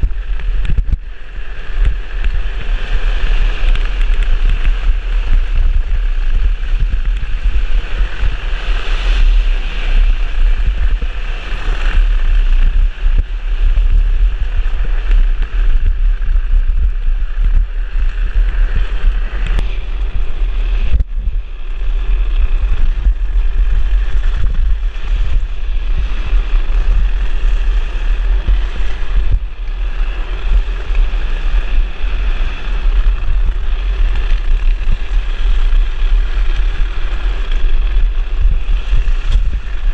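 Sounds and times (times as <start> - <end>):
wheels rasping on asphalt: 0.0 - 39.9
wind buffeting microphone: 0.0 - 39.9.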